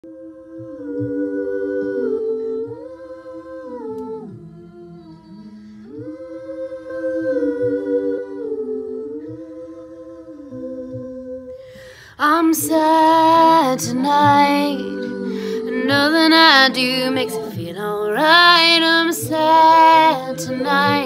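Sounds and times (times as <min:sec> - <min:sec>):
woman humming in harmony: 0:12.2 - 0:21.0.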